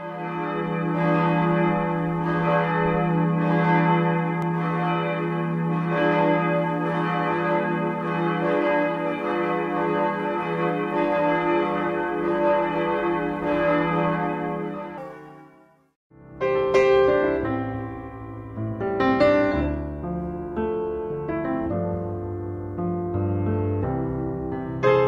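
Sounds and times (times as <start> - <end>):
church bells ringing: 0.0 - 16.0.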